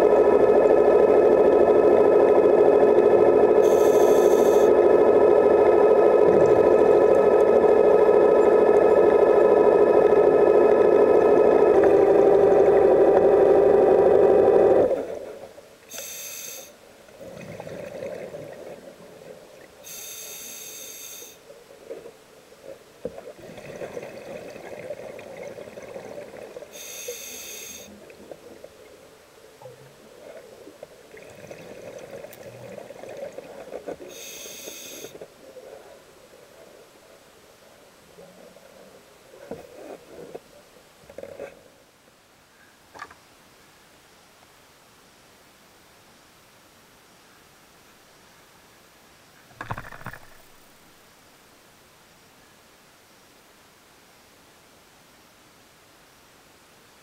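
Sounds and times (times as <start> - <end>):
loud steady whine: 0.0 - 16.8
regulator inhalation hiss: 3.6 - 4.7, 15.9 - 16.8, 19.8 - 21.4, 26.7 - 28.0, 34.1 - 35.2.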